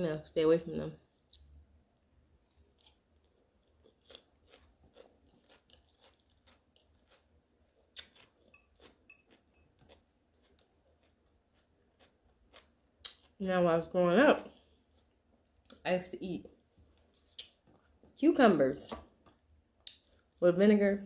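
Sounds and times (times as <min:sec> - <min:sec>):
crunching and chewing salad: 0:02.4 - 0:15.8, 0:16.5 - 0:17.9, 0:19.1 - 0:20.4.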